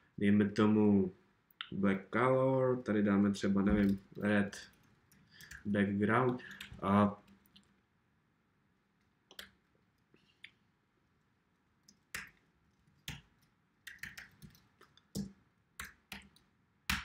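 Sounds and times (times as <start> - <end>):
computer keyboard keystrokes: 5.4 - 5.7, 13.0 - 17.0.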